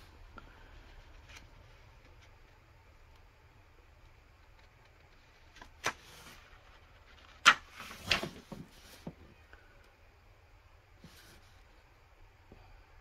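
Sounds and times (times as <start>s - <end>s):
paper rustling: 4.5s - 9.1s
paper page snapping: 5.5s - 6.2s, 7.2s - 8.3s.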